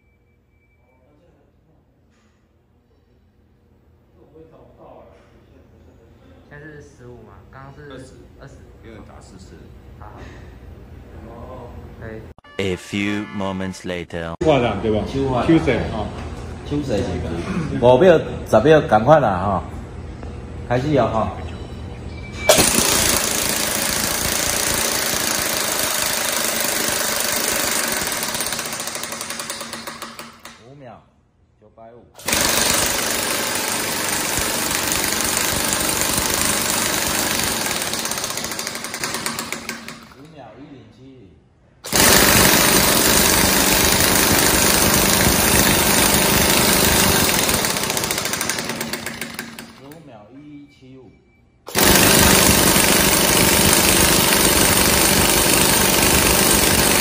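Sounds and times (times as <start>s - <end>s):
air impact wrench hammering: 22.5s - 30.6s, 32.2s - 40.2s, 41.8s - 50.0s, 51.7s - 57.0s.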